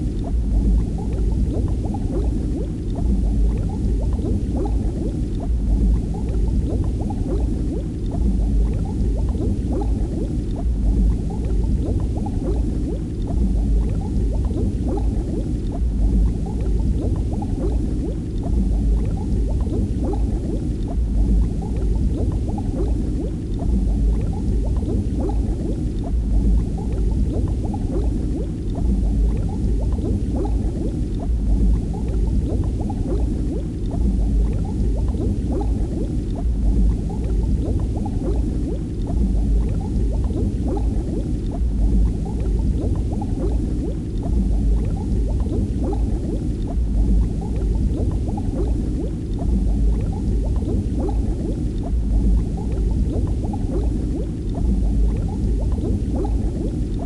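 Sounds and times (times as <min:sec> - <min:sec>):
water bubbling and gurgling: 0:00.0 - 0:57.0.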